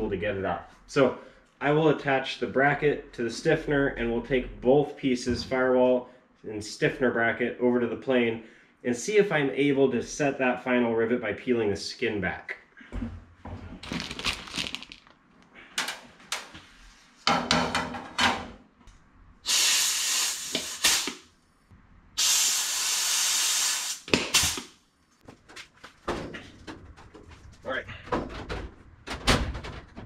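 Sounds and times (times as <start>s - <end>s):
metal parts clinking: 13.9s - 15.1s
compressed air hissing: 19.4s - 21.2s, 22.2s - 24.7s.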